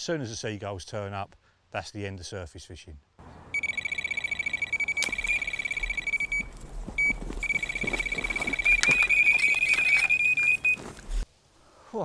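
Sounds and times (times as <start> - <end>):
bite alarm rapid beeping: 3.5 - 10.9.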